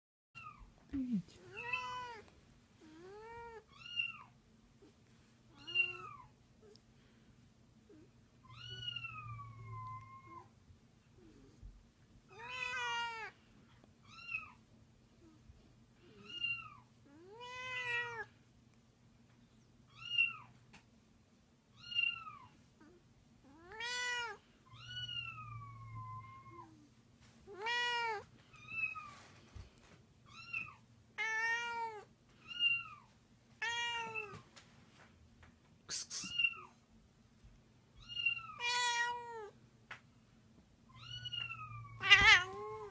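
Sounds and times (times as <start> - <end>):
cats meowing: 1.5 - 4.3, 5.5 - 6.3, 8.4 - 10.5, 12.3 - 13.4, 16.0 - 18.4, 23.4 - 26.8, 27.5 - 29.2, 30.3 - 34.4, 38.0 - 39.6, 40.9 - 42.9.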